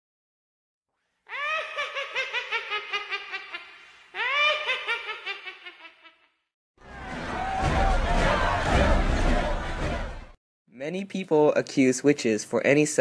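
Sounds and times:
high-pitched witch's cackle: 1.3 - 6.4.

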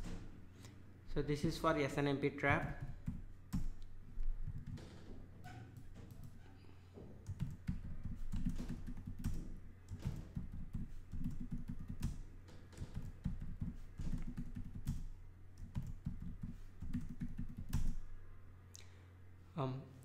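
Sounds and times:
computer keyboard typing: 7.2 - 18.0.

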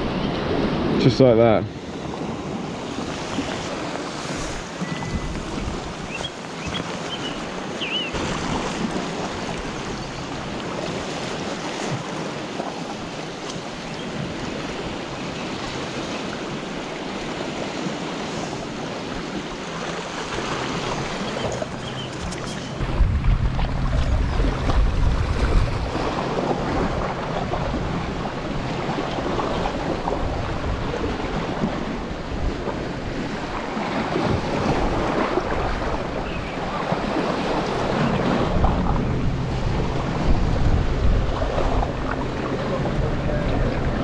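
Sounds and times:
waves washing on rocky shore: 0.0 - 44.0
wind buffeting microphone: 1.8 - 44.0
heavy low rumble: 21.6 - 31.0, 37.5 - 44.0.

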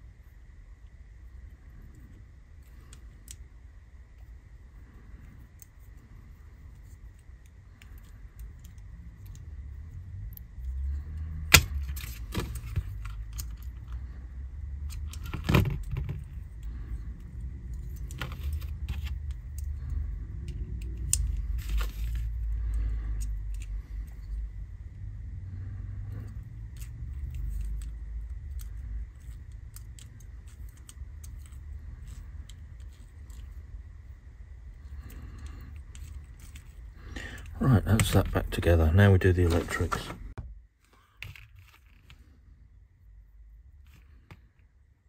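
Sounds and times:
small plastic parts clicking: 6.7 - 9.6, 14.8 - 24.4, 26.1 - 33.6.

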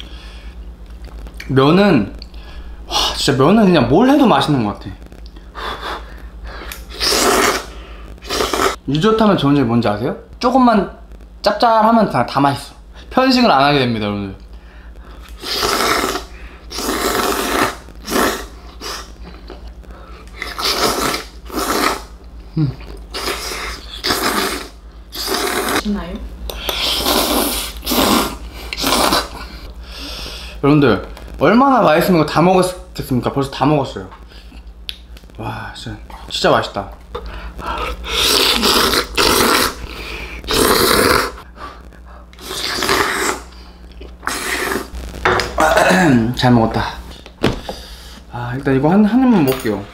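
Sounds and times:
person slurping noodles: 6.7 - 8.8, 15.3 - 19.1, 20.3 - 25.8, 26.6 - 29.6, 37.6 - 41.4, 42.4 - 43.5, 44.2 - 45.0.

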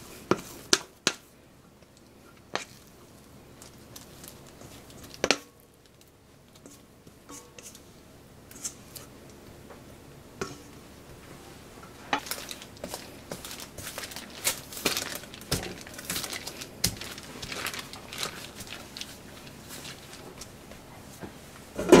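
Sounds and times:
paper rustling: 12.2 - 20.5.

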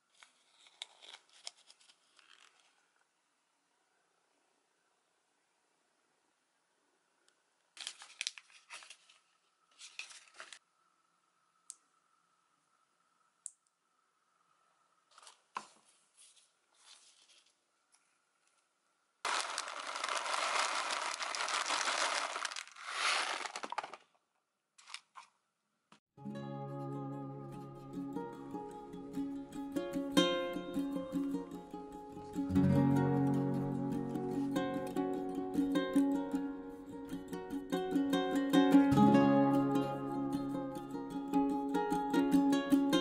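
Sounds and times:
rustling of supplies: 0.0 - 3.0, 7.8 - 10.6, 15.1 - 18.7, 19.3 - 24.2.

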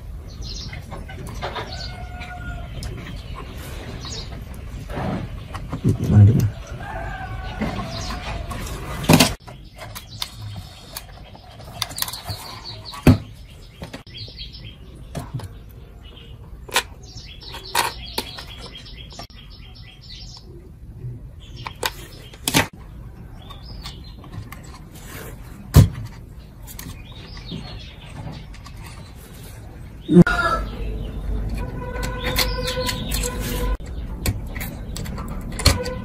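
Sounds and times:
small birds chirping: 0.0 - 35.9
tools clicking and knocking: 31.4 - 36.0.

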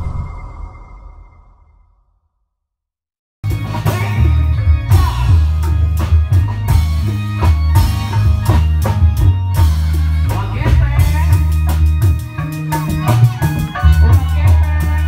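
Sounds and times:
drums and percussion: 3.4 - 15.0.

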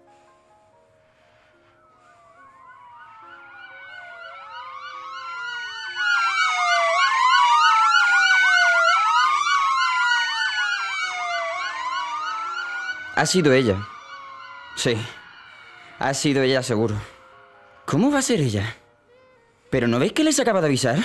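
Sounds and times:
faint low music: 0.0 - 5.2
sirens wailing: 0.0 - 21.0.

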